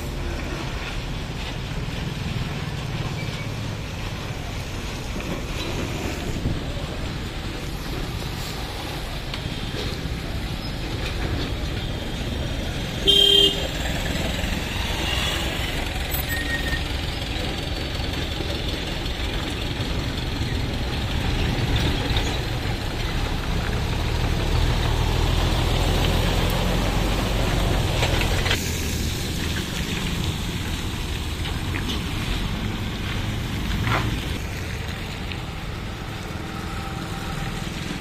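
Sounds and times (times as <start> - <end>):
road traffic rumble: 0.0 - 38.0
truck engine rumble: 0.0 - 38.0
horn blast: 13.0 - 13.8.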